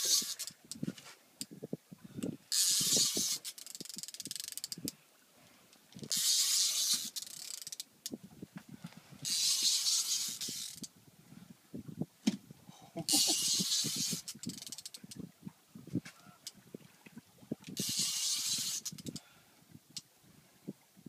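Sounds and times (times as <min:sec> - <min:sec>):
fishing reel clicking: 0:00.0 - 0:00.8, 0:02.2 - 0:05.0, 0:06.0 - 0:08.2, 0:09.2 - 0:10.9, 0:13.1 - 0:15.2, 0:17.7 - 0:19.3.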